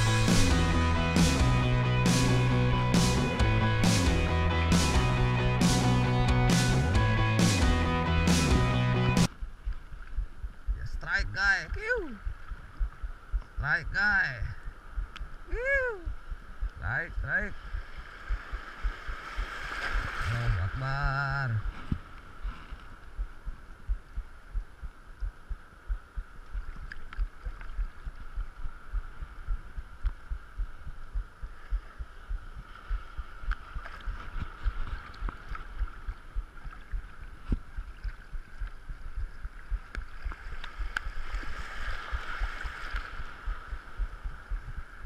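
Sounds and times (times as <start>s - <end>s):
dull low thumps: 0.0s - 22.1s, 22.9s - 41.2s, 42.0s - 45.0s
small waves washing: 9.4s - 45.0s.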